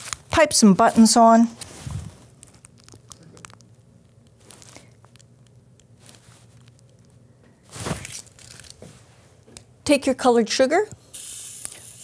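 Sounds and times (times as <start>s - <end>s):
paper piping bag crinkling: 0.0s - 8.8s
low room hum: 0.0s - 12.0s.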